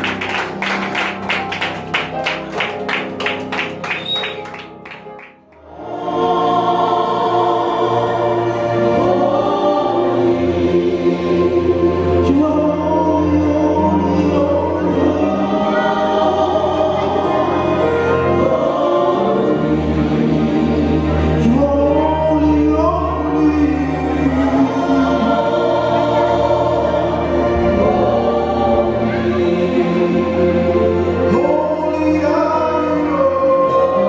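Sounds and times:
band playing: 0.0 - 5.5
gospel choir singing in harmony: 5.6 - 34.0.

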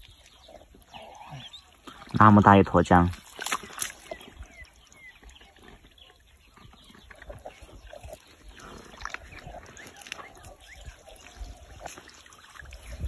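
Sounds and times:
hands squelching in wet mud: 0.0 - 13.0
water sloshing: 0.0 - 13.0
wet slaps: 3.2 - 4.2.

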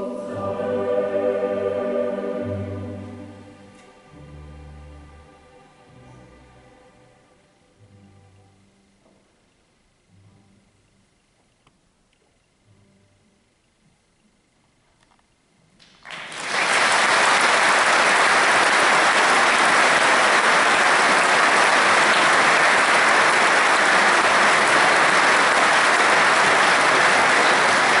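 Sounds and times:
audience applause: 15.8 - 28.0.

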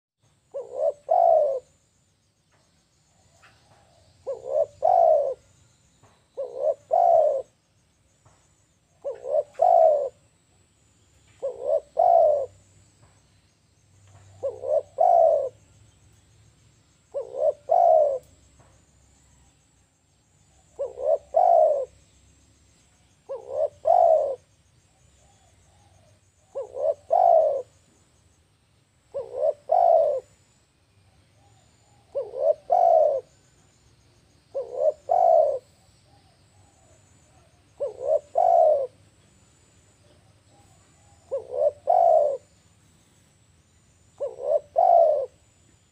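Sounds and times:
dove cooing: 0.5 - 1.8, 3.4 - 5.6, 6.4 - 7.6, 8.9 - 10.2, 11.4 - 12.6, 14.1 - 15.7, 17.1 - 18.3, 20.6 - 22.0, 23.2 - 27.8, 29.1 - 30.4, 31.4 - 33.5, 34.5 - 39.0, 39.9 - 42.6, 44.2 - 45.5.

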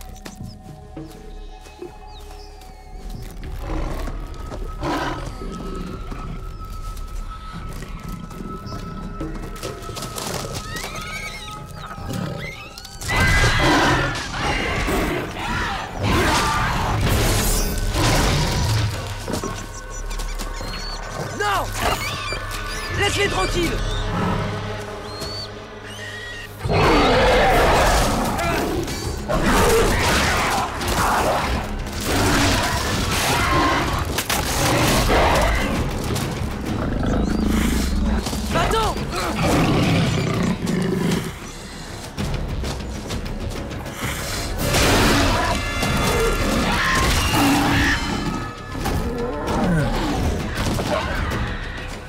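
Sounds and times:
action film score: 0.0 - 52.0
animals shrieking: 9.9 - 17.0, 17.9 - 42.1, 44.2 - 52.0.

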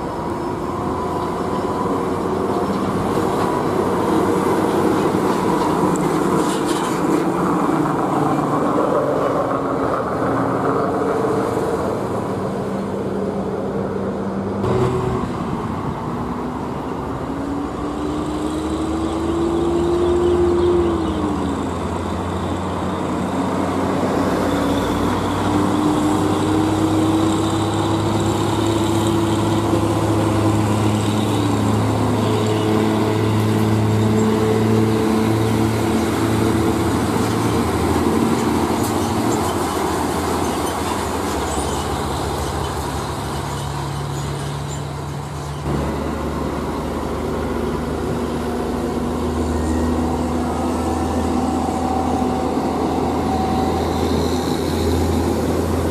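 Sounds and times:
heavy truck traffic: 0.0 - 55.9
truck engine pulling away: 14.6 - 55.9.

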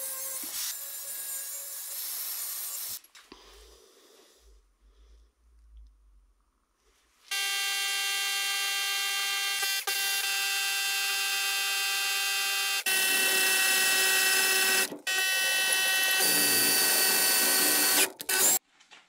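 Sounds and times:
cordless drill whining: 7.3 - 18.6.

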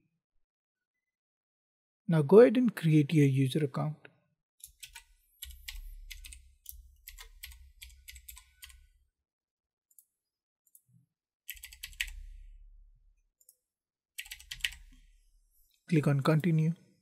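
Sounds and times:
keyboard typing: 4.6 - 8.9, 11.5 - 12.4, 14.2 - 15.0.

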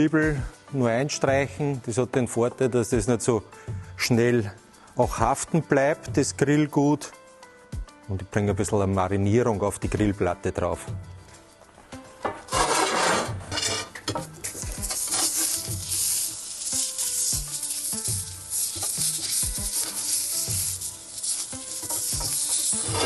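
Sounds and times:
light knocks and scrapes: 12.2 - 14.4
oil sizzling on grill plate: 12.4 - 23.0.

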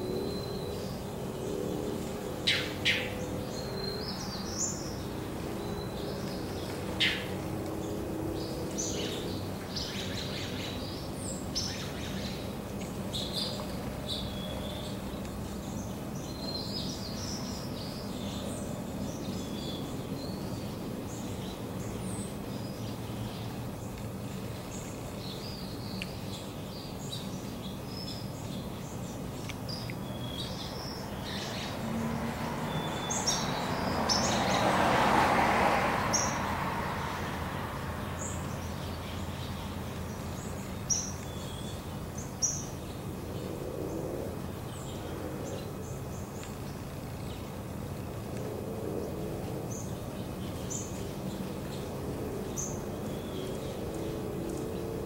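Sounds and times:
distant traffic hum: 0.0 - 55.0
small birds chirping: 0.0 - 55.0
car passing: 30.2 - 42.2.

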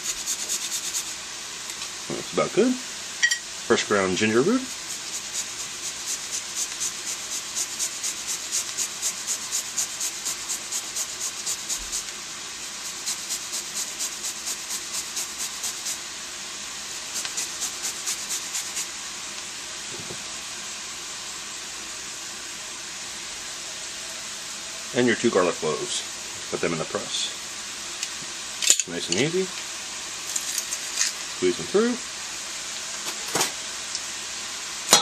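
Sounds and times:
ginger grated on metal grater: 0.0 - 1.2, 4.1 - 16.0, 16.9 - 18.9
steady hiss: 0.0 - 35.0.

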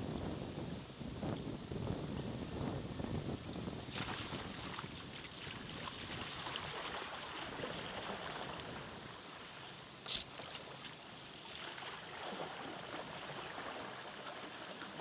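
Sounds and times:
water rushing along kayak hull: 3.3 - 15.0
sharp water slap: 3.9 - 8.7.

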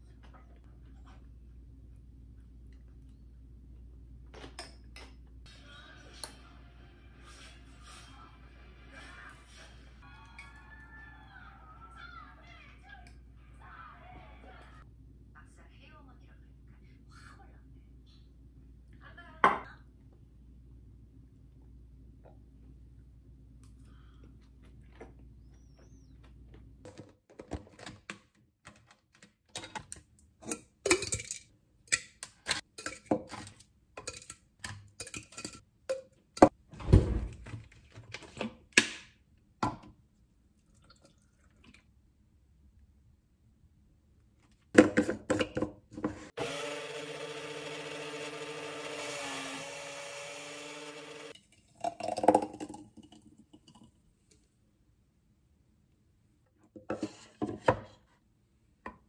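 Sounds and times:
blender motor running: 46.4 - 51.4.

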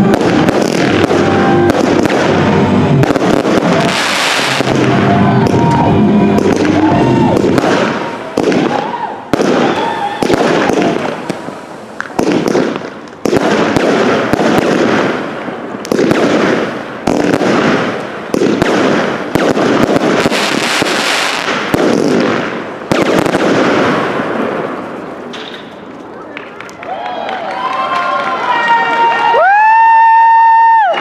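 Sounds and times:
firework shells bursting: 0.0 - 26.1
firework crackle: 0.0 - 27.0.

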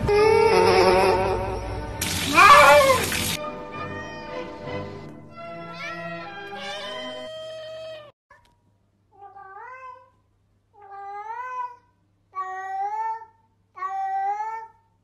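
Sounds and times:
cats meowing: 2.3 - 4.6, 5.6 - 8.1.

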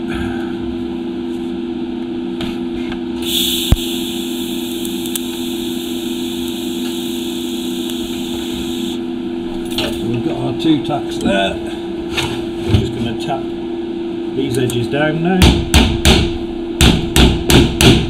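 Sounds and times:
constant low hum: 0.0 - 18.0
welding arc cracking and hissing: 3.2 - 9.0.

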